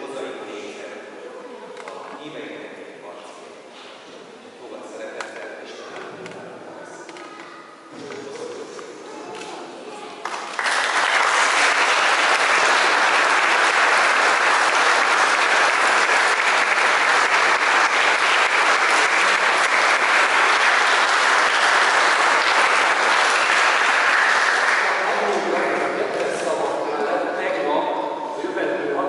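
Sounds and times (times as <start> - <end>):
crowd applauding: 10.2 - 26.2.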